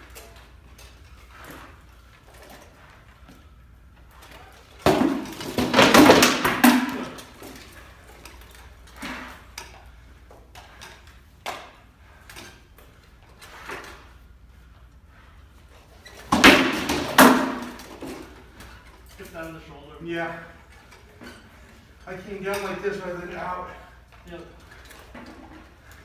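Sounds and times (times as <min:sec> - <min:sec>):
swords striking shields and armour: 0:04.8 - 0:07.2, 0:16.3 - 0:18.0.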